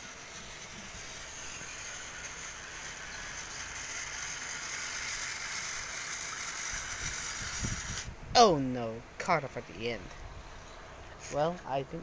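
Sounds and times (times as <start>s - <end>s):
toy train motor whirring: 0.0s - 8.1s.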